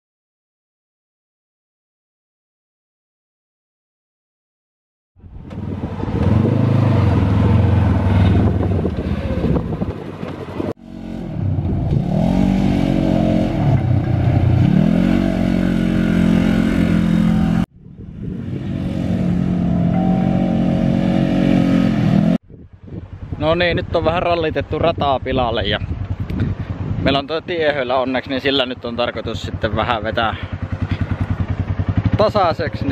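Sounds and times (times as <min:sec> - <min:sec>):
engine running and revving: 0:05.2 - 0:22.4, 0:29.1 - 0:32.9.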